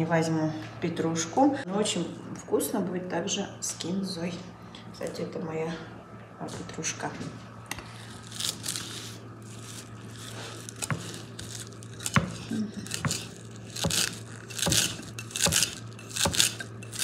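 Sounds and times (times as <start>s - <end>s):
stems crunching: 8.1s - 17.0s.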